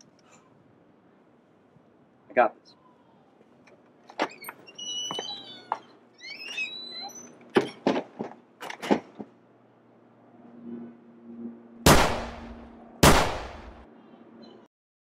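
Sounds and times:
door hinge squeaks: 4.1 - 7.9
wooden door opening and shutting: 4.1 - 9.3.

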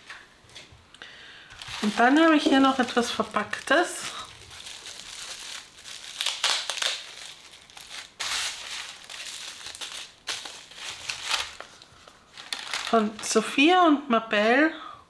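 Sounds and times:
wrapping crinkling: 1.5 - 13.5.

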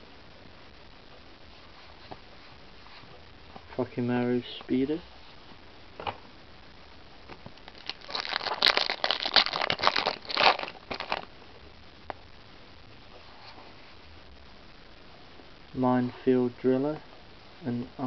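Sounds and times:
foil wrapper crinkling and tearing: 7.6 - 11.3.

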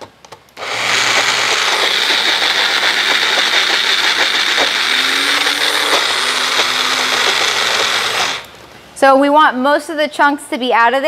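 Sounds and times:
blender motor running: 0.6 - 8.5.

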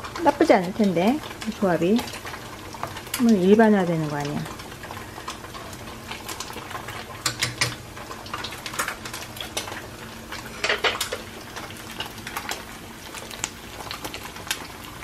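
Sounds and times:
low sizzle: 0.0 - 15.0
chopsticks clicking on a pan: 7.2 - 7.8.

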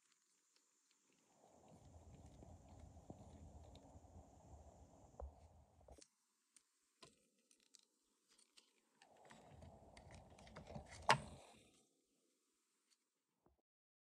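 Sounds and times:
plastic parts clicking and rattling: 6.0 - 11.4.

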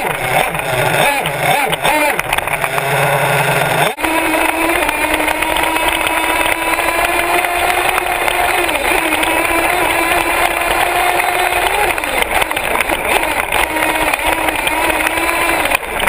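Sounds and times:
toy truck motor running: 0.0 - 16.0.

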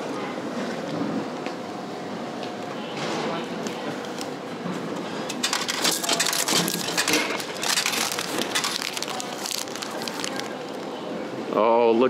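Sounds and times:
vending machine flap: 5.3 - 10.4
plastic packaging crinkling: 5.3 - 11.1.

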